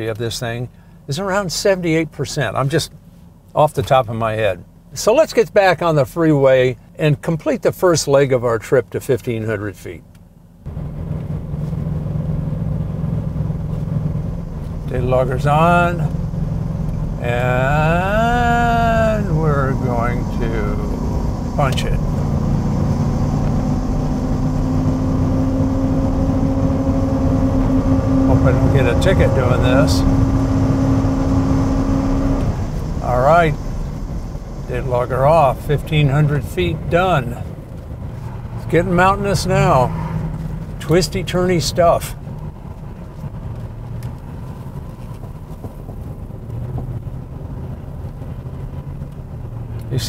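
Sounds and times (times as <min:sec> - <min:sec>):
tyre and road noise: 0:10.0 - 0:50.0
car engine accelerating: 0:10.6 - 0:50.0.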